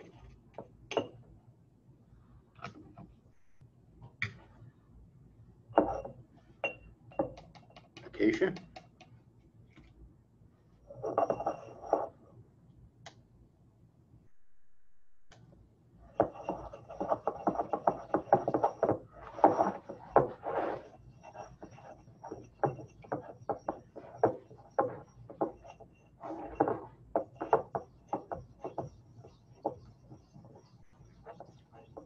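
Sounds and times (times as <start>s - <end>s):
pestle scraping in mortar: 16.1s - 32.0s.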